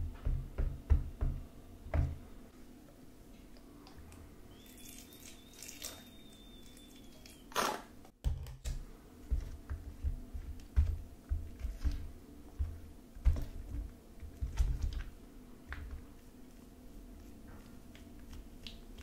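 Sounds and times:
spoon stirring slime: 0:09.2 - 0:19.0.

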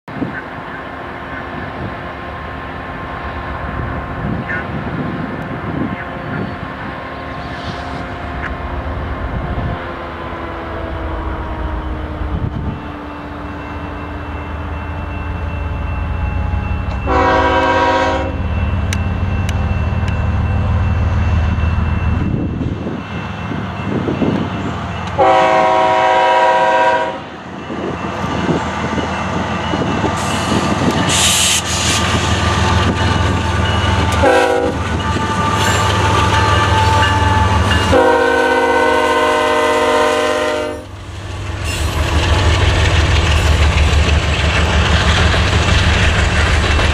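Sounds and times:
diesel locomotives rumbling: 0:00.1 - 0:46.9
multi-note air horn blasts: 0:17.0 - 0:18.4, 0:25.2 - 0:27.3, 0:34.2 - 0:34.8, 0:36.4 - 0:40.9.

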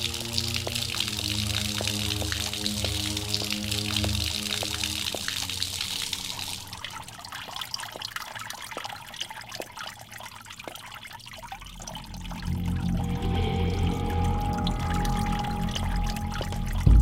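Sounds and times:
tap water splashing on paving: 0:00.0 - 0:11.0
water drips: 0:00.0 - 0:17.0.

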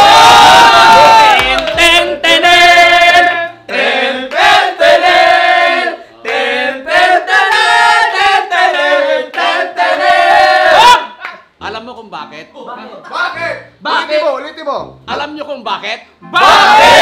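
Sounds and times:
people singing without instruments: 0:01.3 - 0:10.9.

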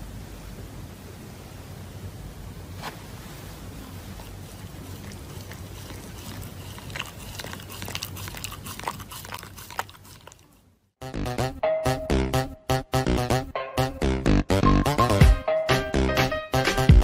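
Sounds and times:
dog chewing paper: 0:03.7 - 0:10.7.

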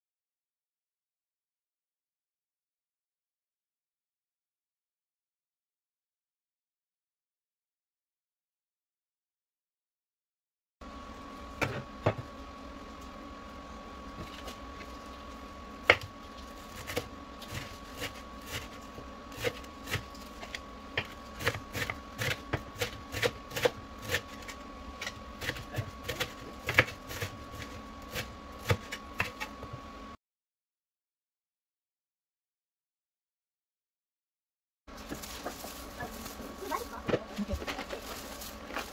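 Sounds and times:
knife chopping on wooden board: 0:15.9 - 0:16.1, 0:16.7 - 0:29.6.

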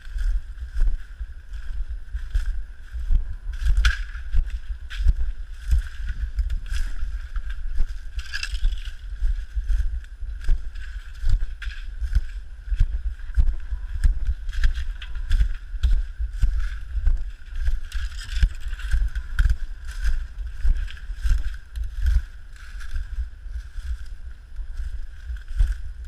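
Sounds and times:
camera handling rumble and rustle: 0:03.3 - 0:26.0.

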